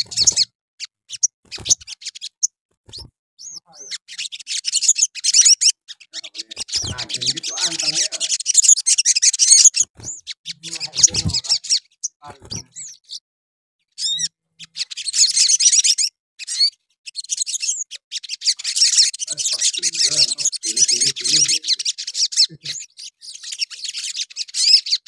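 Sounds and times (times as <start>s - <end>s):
bird chattering song: 0.0s - 13.2s, 13.8s - 25.0s.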